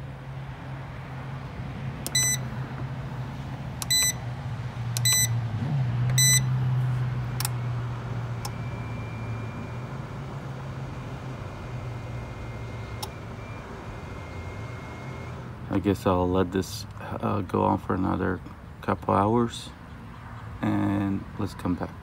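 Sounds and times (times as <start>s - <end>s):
steady low hum: 0.0s - 15.9s
charger beeping: 2.0s - 2.6s, 3.8s - 4.3s, 4.9s - 5.4s, 6.0s - 6.6s, 7.2s - 15.8s.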